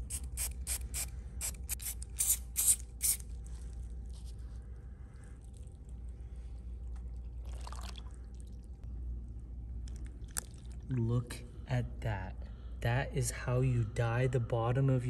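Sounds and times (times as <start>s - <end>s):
low steady hum: 0.0s - 15.0s
water moving and dripping in tub: 6.8s - 9.0s, 9.8s - 11.0s.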